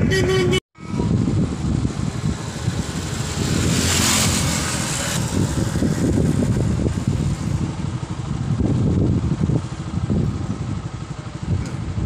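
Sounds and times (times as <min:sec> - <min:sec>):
road traffic passing: 0:00.0 - 0:12.0
wind buffeting microphone: 0:00.0 - 0:12.0.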